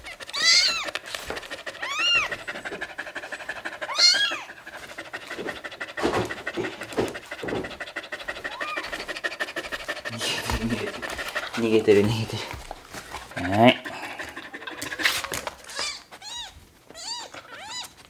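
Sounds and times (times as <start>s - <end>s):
kitten mewing: 0.0s - 4.6s, 8.2s - 9.3s, 13.4s - 18.0s
dog panting: 0.0s - 18.0s.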